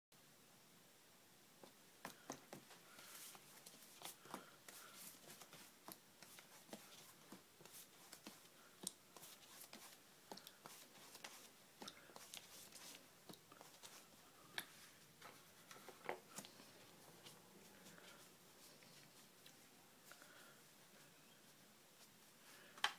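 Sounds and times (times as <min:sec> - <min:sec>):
brush scratching on paper: 0:09.2 - 0:14.1.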